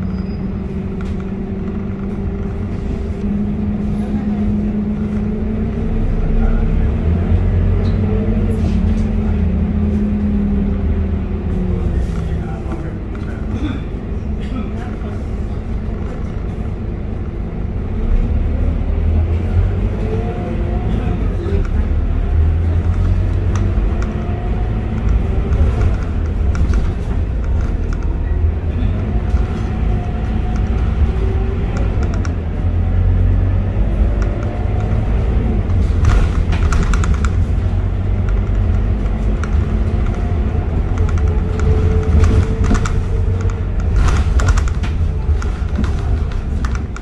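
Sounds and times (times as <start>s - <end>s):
bus diesel engine rumble: 0.0s - 47.0s
faint drivetrain whine: 0.0s - 47.0s.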